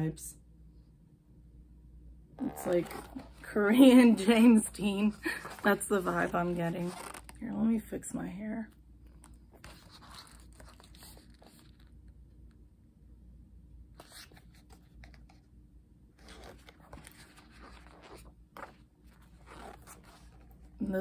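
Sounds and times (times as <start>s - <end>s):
thick pages rustling: 2.4s - 7.4s, 9.1s - 12.0s, 14.0s - 15.5s, 16.2s - 21.0s.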